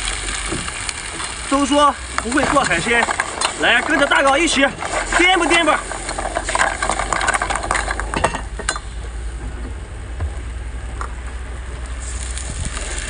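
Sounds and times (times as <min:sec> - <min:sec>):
water hissing in hot pan: 0:00.0 - 0:08.2, 0:11.8 - 0:13.0
steady low rumble: 0:00.0 - 0:13.0
metal spatula scraping a wok: 0:02.2 - 0:08.4.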